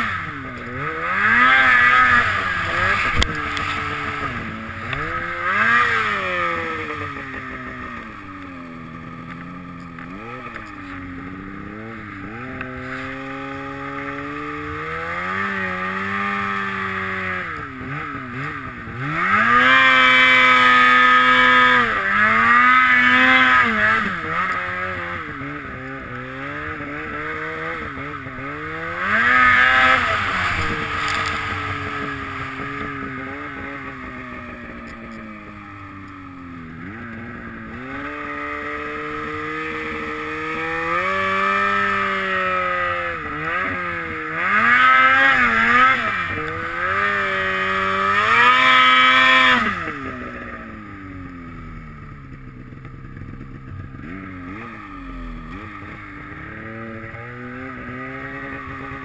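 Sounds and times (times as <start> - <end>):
snowmobile engine revving: 0.0 - 59.0.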